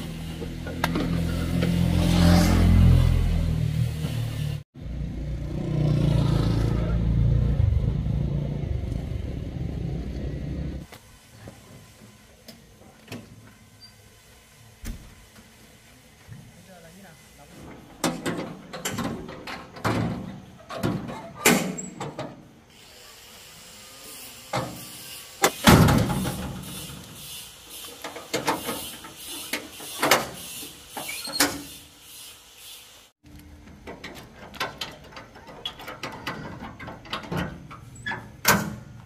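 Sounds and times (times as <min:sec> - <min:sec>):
metal tailgate clanking shut: 0:18.0 - 0:22.4, 0:25.6 - 0:26.4, 0:33.9 - 0:39.0.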